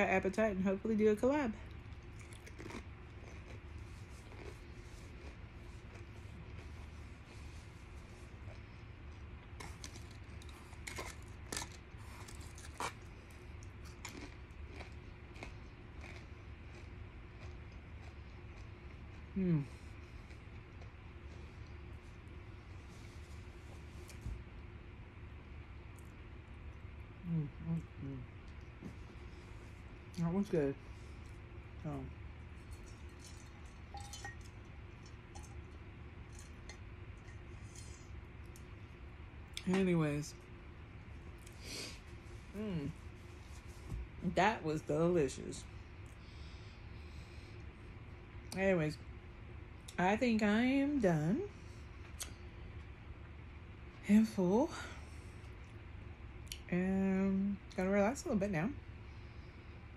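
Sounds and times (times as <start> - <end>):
low room hum: 0.0 - 59.9
chips being bitten: 9.6 - 16.8
tableware clinking: 33.9 - 34.5.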